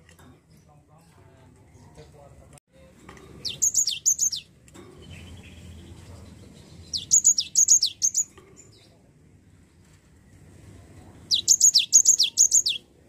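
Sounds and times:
bird singing whistled notes: 0:03.4 - 0:08.3, 0:11.3 - 0:12.9.

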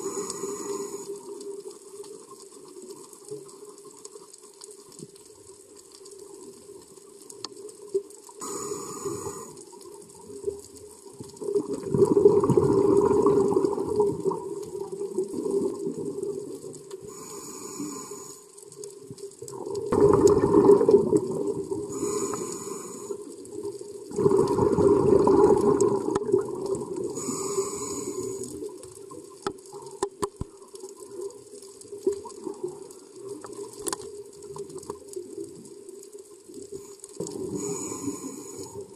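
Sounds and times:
regulator hissing inhalations: 0:00.0 - 0:01.2, 0:08.4 - 0:09.6, 0:17.0 - 0:18.5, 0:21.9 - 0:23.3, 0:27.1 - 0:28.7, 0:37.5 - 0:38.9
exhaled bubbles rushing: 0:11.4 - 0:16.8, 0:19.4 - 0:22.1, 0:23.3 - 0:28.6.

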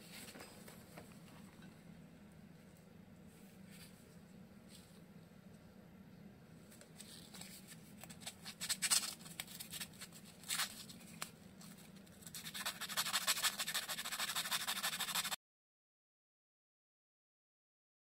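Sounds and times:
rapid rubbing strokes: 0:12.3 - 0:15.4.

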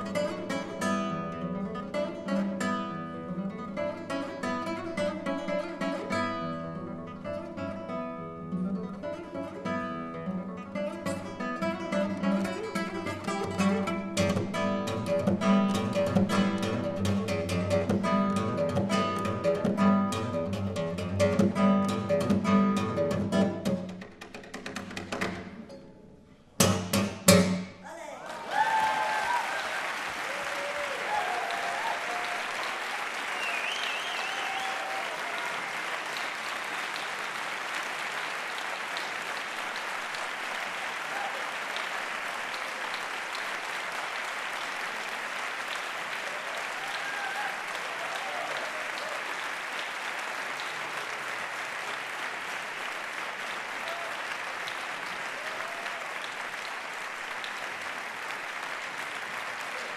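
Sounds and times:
classical guitar chords: 0:00.0 - 0:24.3
audience applause: 0:28.0 - 0:59.9.

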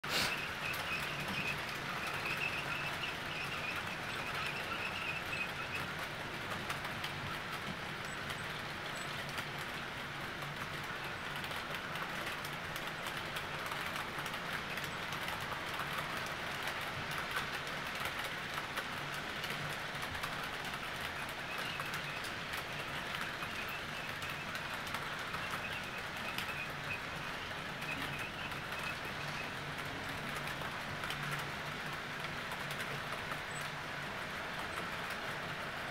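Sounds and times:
model train wheels rumbling: 0:00.0 - 0:35.9
rapid clicking over rail joints: 0:00.0 - 0:35.9.

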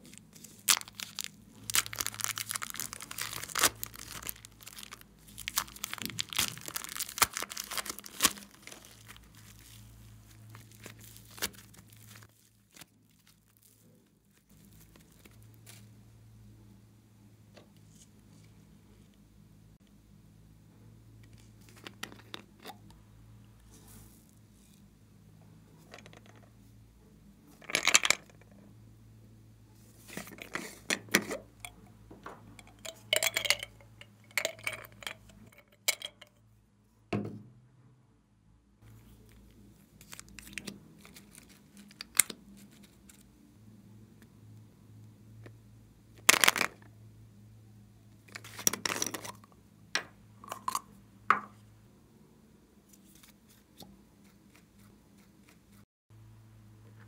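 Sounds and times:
plastic tubes clicking on glass: 0:32.6 - 0:36.3.

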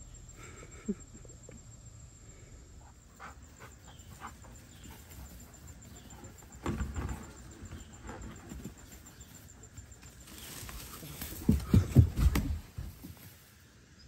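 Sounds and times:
dog paws thudding on turf: 0:10.2 - 0:13.4.

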